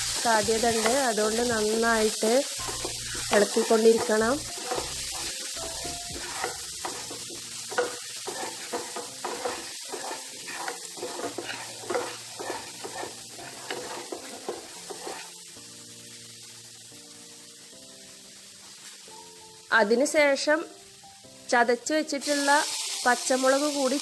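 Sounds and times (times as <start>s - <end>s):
wooden spatula stirring in pan: 0.0s - 15.4s
oil sizzling: 0.0s - 24.0s.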